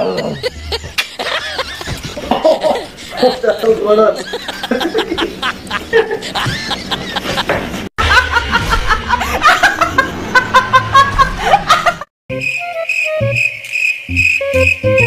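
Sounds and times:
voice and laughter: 0.0s - 7.5s
woman laughing hard: 0.0s - 12.1s.

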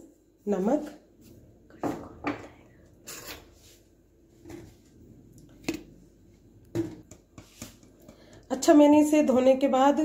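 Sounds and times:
soft knocks of kitchen items: 6.7s - 8.4s.

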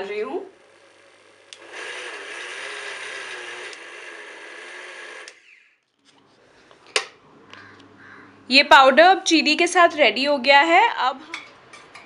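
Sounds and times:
mixer grinder whirring: 0.0s - 5.8s.

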